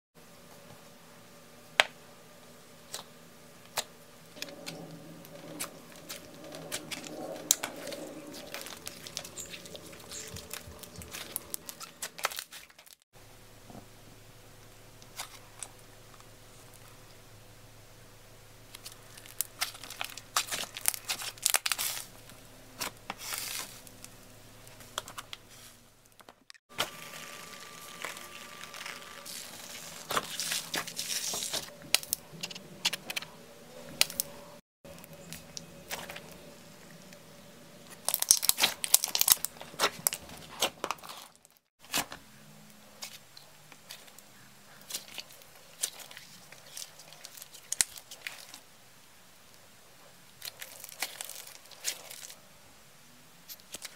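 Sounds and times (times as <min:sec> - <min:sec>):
slime crackling and popping: 0:03.7 - 0:13.0, 0:18.7 - 0:22.1, 0:38.0 - 0:42.0, 0:44.9 - 0:48.6.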